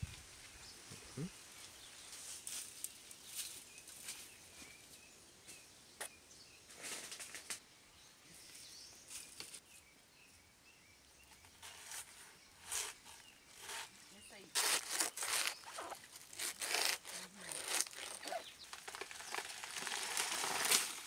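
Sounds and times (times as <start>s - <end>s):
faint bird chirps: 0.5s - 2.4s
dry leaves rustling and crunching: 11.6s - 21.0s.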